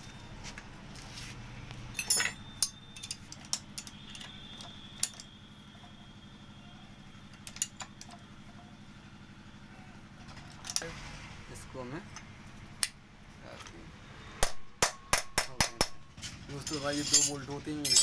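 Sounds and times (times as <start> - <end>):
metal tools clinking on bolts: 1.9 - 5.4, 7.3 - 8.7, 16.2 - 18.0.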